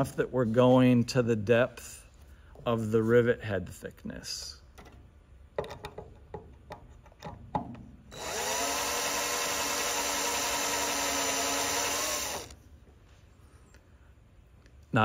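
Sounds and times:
power drill drilling into metal: 8.1 - 12.6.

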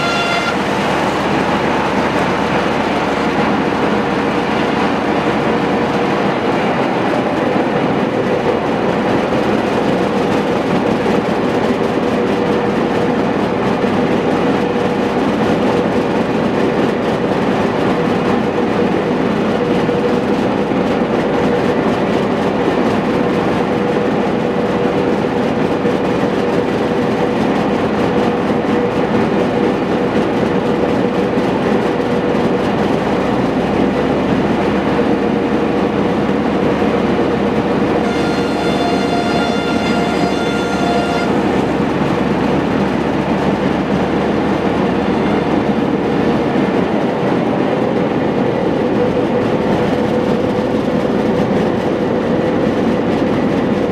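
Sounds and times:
diesel engine running: 0.0 - 53.9.

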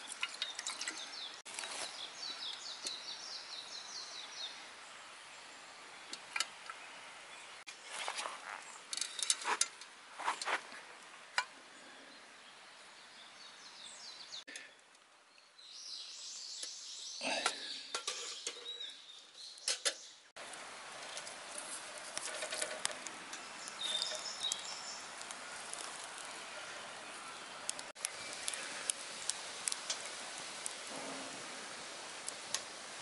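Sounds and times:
wood fire crackling: 20.4 - 33.0.

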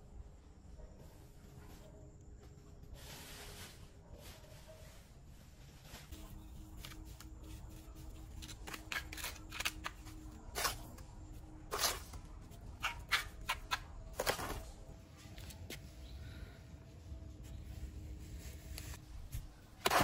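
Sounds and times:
trowel scraping wet mortar: 11.7 - 12.2.

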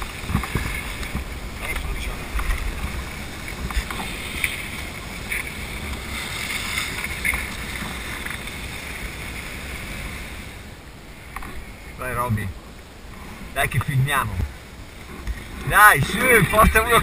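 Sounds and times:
skis scraping over snow: 0.0 - 10.6
wind rumbling on microphone: 0.0 - 17.0.

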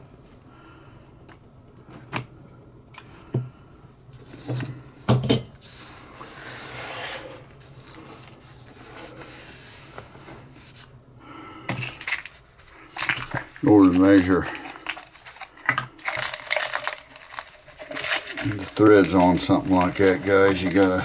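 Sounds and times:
rubbing or sliding noise: 5.6 - 10.9.

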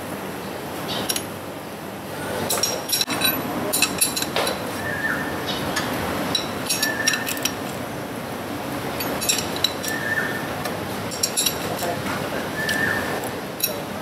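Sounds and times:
metallic tool clinks: 9.0 - 10.0.

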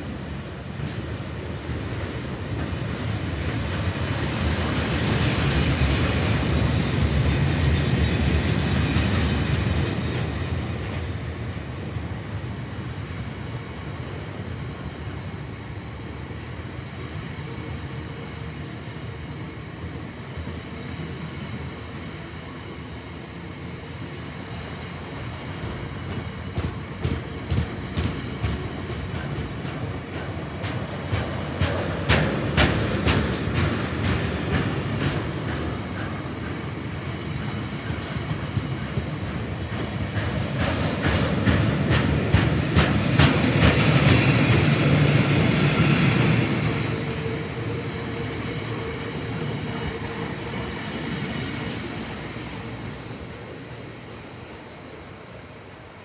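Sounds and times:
train rumble: 0.0 - 56.0
train wheels clicking on rail joints: 0.3 - 15.1, 23.6 - 52.9.

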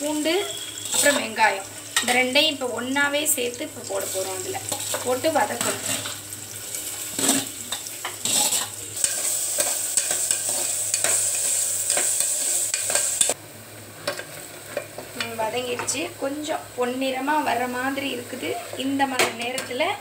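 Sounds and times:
onions sizzling in hot oil: 0.0 - 20.0
ladle scraping and clinking pot: 0.5 - 1.3.

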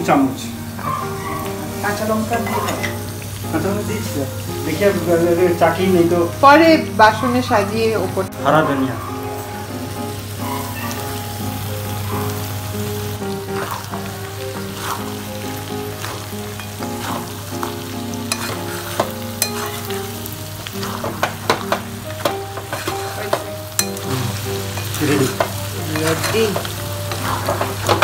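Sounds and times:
curry sizzling in a pan: 0.0 - 28.0
spatula scraping and clinking pan: 2.3 - 3.1, 13.5 - 15.2, 16.0 - 24.1, 24.7 - 28.0.

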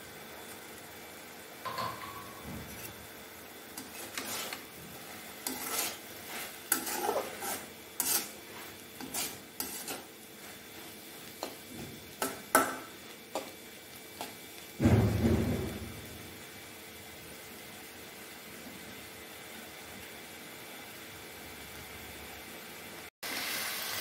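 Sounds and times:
metal spatula scraping a pan: 1.7 - 3.0, 3.7 - 11.6.

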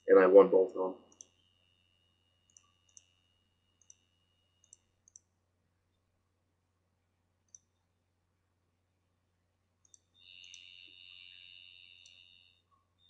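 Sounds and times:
faint steady hum: 0.0 - 13.0
computer mouse clicks: 1.1 - 1.4, 2.5 - 3.2, 3.8 - 5.3, 7.5 - 7.8, 9.8 - 10.7.

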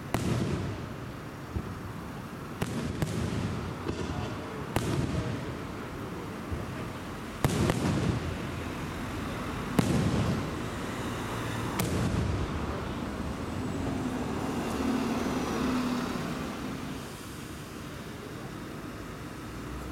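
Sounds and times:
firework shells bursting: 0.0 - 8.5.

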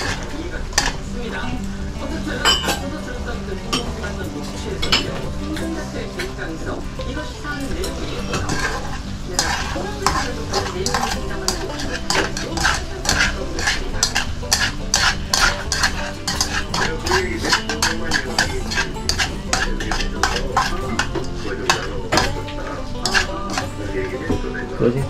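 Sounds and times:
utensils clicking against a pan: 0.0 - 1.8, 7.1 - 24.0
meat sizzling: 0.0 - 25.0.

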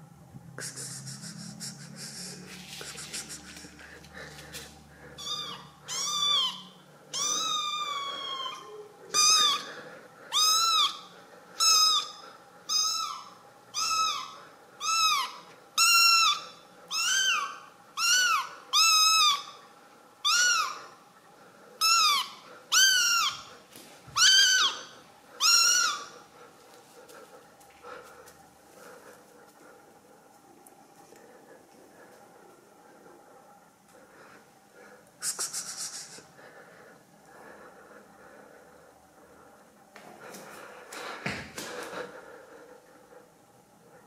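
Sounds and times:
kitten meowing: 5.2 - 9.7.

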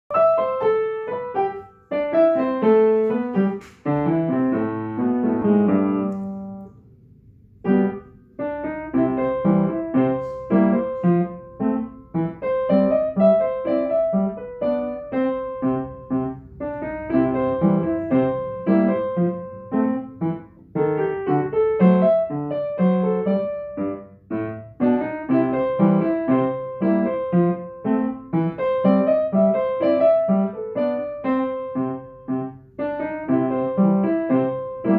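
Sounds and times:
upright piano playing: 0.1 - 34.9.

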